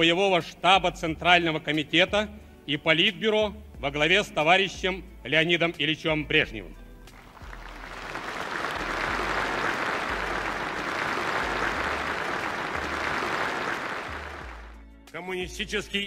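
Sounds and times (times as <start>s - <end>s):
large audience applauding: 7.1s - 14.8s.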